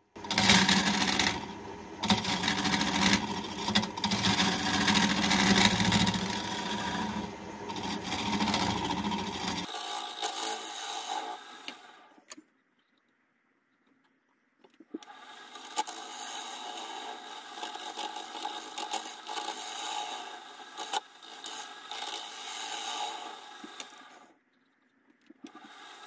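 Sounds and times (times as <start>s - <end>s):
wood lathe motor hum: 0.1s - 12.0s, 15.0s - 24.2s
gouge scraping wooden bowl: 0.3s - 11.4s.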